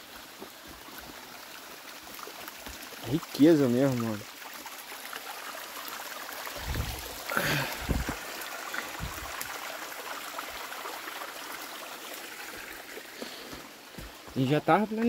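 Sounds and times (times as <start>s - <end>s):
stream running water: 0.0s - 15.0s
soft thumps: 7.8s - 8.2s.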